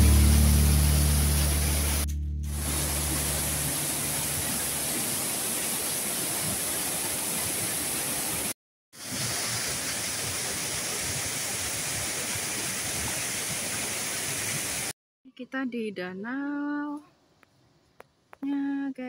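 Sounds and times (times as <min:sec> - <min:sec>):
water pouring from spillway: 0:02.6 - 0:14.9.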